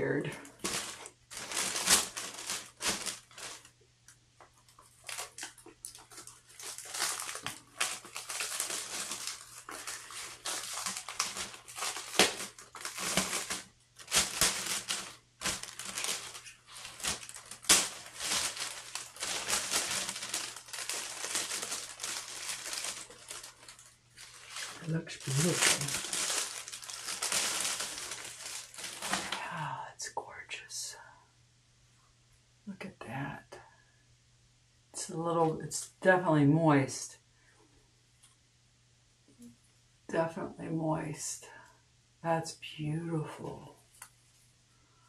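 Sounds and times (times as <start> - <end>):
plastic sleeve crinkling: 0.0 - 3.8, 4.4 - 29.6.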